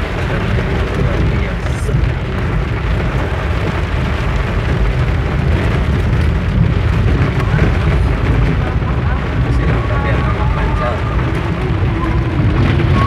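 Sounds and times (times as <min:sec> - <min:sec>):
heavy rain drumming on car roof: 0:00.0 - 0:13.0
low rumble of moving car: 0:00.0 - 0:13.0.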